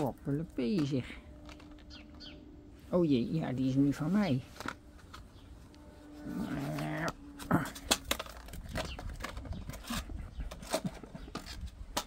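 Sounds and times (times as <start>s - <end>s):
person humming: 6.1s - 8.1s.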